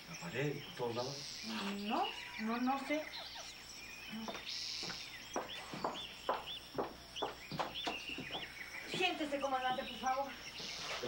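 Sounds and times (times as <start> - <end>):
small bird chirping: 0.0 - 11.0
footsteps on hard paved floor: 4.1 - 9.2.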